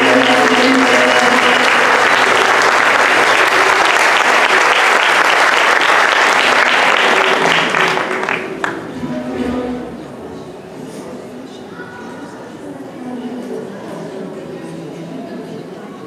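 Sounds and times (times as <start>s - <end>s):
choir holding final chord: 0.0s - 4.0s
audience applauding: 0.0s - 9.0s.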